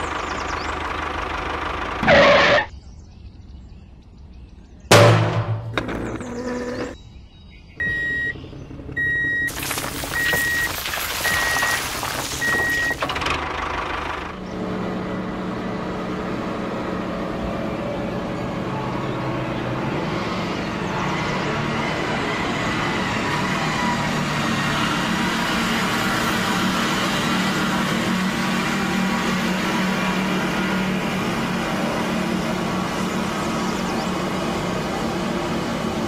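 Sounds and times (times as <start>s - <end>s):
noisy motor: 0.0s - 2.7s, 4.9s - 7.0s, 7.8s - 36.0s
tractor engine running: 0.0s - 2.7s, 7.8s - 36.0s
reversing alarm beeps: 7.8s - 8.4s, 9.0s - 13.0s.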